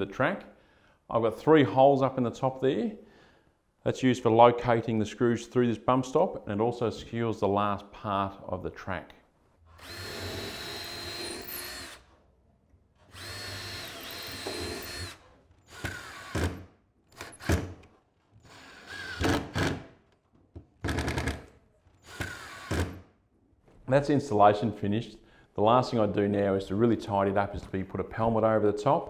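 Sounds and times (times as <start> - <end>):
cordless drill driving screws: 9.8 - 12.1, 13.1 - 19.9, 22.0 - 23.0.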